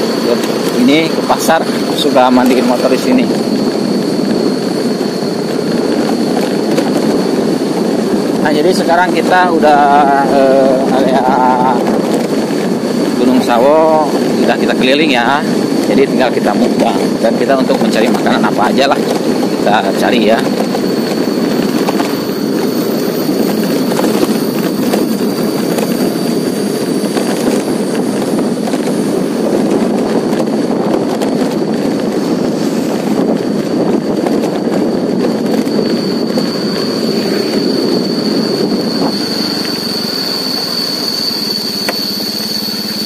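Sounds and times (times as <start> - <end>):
high-pitched whine: 0.0 - 43.0
road and wind noise: 0.0 - 43.0
motorcycle engine: 20.4 - 43.0.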